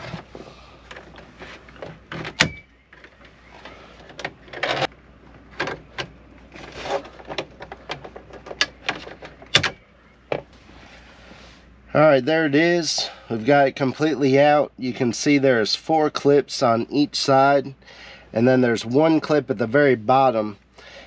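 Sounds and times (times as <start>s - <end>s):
plastic scraping and rattling: 0.0s - 10.5s.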